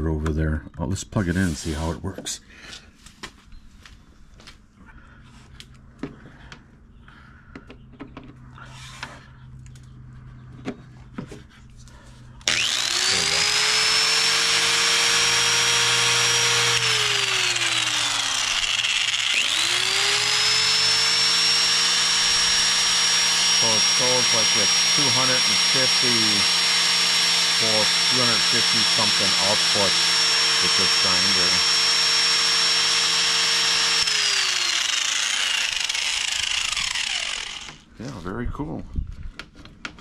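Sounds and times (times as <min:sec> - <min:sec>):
angle grinder whining: 0:08.6 - 0:09.2, 0:12.4 - 0:38.2.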